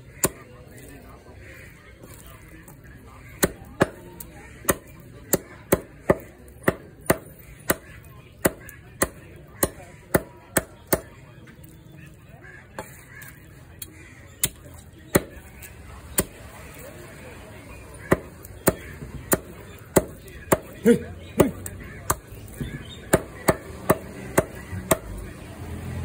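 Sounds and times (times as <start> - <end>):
knife chopping chicken on wood: 3.3 - 11.1, 14.4 - 16.4, 18.0 - 20.8, 21.4 - 25.1.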